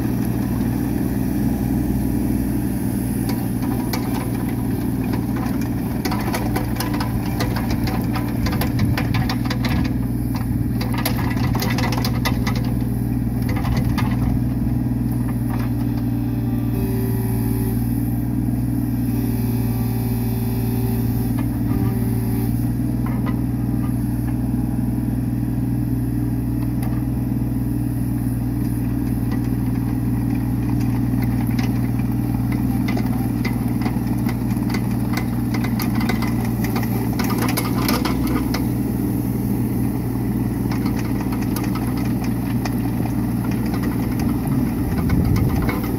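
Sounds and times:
excavator diesel engine running: 0:00.0 - 0:45.9.

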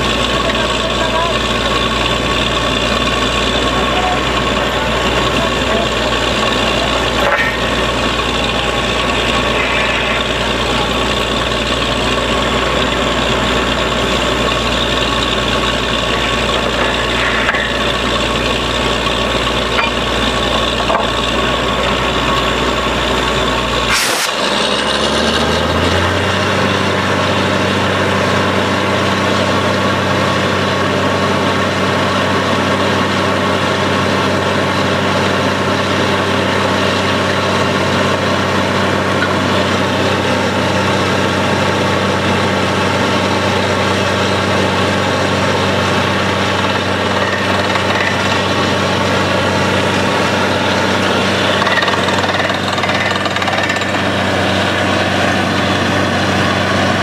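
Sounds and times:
drilling rig running: 0:00.0 - 0:57.0
mud blowing out of borehole: 0:23.9 - 0:26.3.

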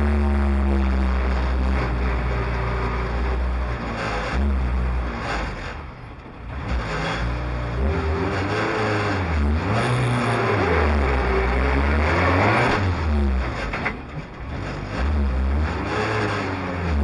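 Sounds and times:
rally car engine revving: 0:00.0 - 0:17.0.

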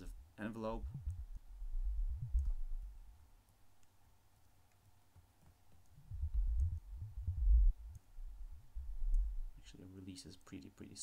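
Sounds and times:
faint clicks: 0:02.2 - 0:02.6, 0:03.4 - 0:06.9, 0:07.8 - 0:08.1.

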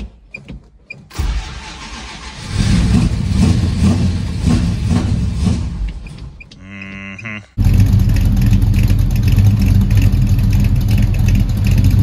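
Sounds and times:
car engine idling: 0:07.6 - 0:12.0
light engine ticking: 0:07.6 - 0:12.0.

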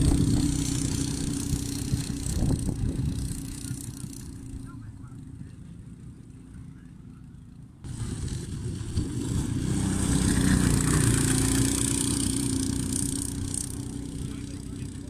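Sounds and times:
small kart engine passing: 0:00.0 - 0:15.0.

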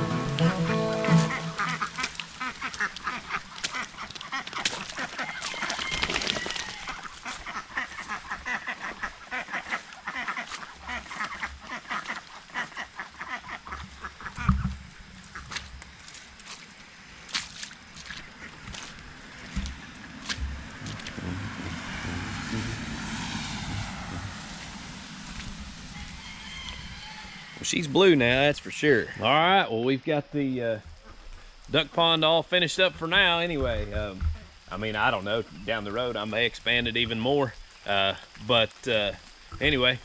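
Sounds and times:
ducks quacking: 0:00.0 - 0:15.7, 0:18.0 - 0:28.6
low thumps: 0:19.5 - 0:25.9.

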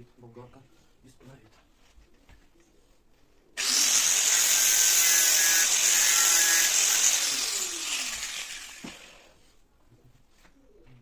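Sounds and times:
grinder disc winding down whine: 0:03.6 - 0:09.2
angle grinder grinding: 0:03.6 - 0:09.4.

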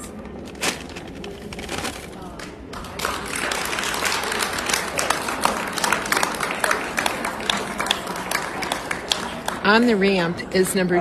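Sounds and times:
audience applauding: 0:02.8 - 0:09.8.

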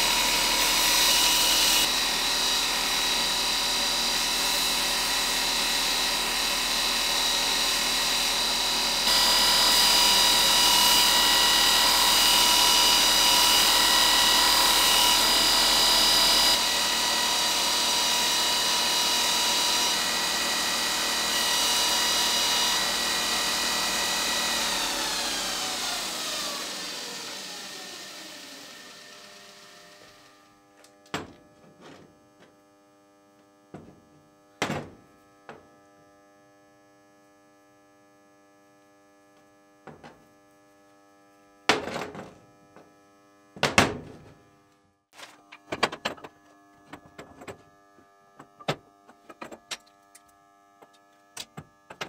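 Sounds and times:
grinder winding down: 0:00.0 - 0:30.5
belt grinder motor whine: 0:00.0 - 0:31.1.

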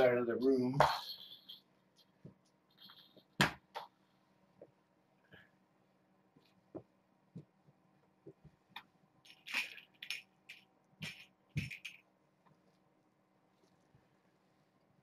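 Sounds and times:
rustling and clatter of objects: 0:09.2 - 0:12.1.

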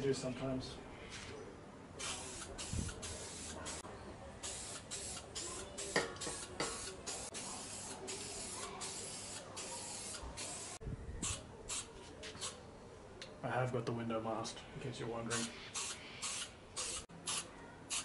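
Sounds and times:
aerosol spray can hissing: 0:02.0 - 0:03.8, 0:04.4 - 0:10.8, 0:15.8 - 0:18.0.

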